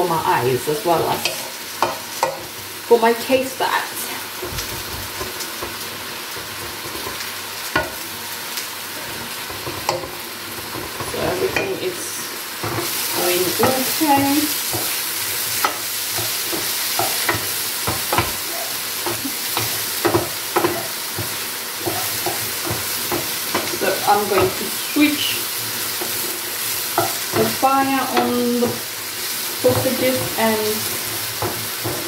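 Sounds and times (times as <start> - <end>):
food sizzling in a frying pan: 0.0 - 32.0
wooden spoon stirring in a pot: 4.0 - 8.1, 8.8 - 32.0
wood knocking against a pan: 6.7 - 8.0, 9.5 - 10.2, 15.6 - 24.6
wooden spatula scraping a pan: 12.6 - 32.0.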